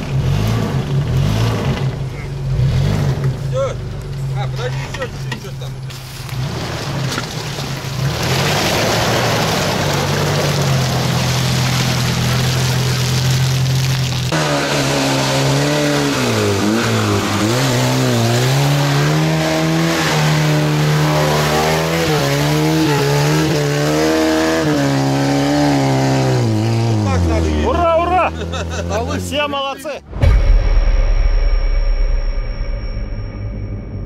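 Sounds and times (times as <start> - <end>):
engine revving unevenly: 0.0 - 29.5
off-road engines under load: 0.0 - 30.1
tyres churning mud: 4.5 - 29.8.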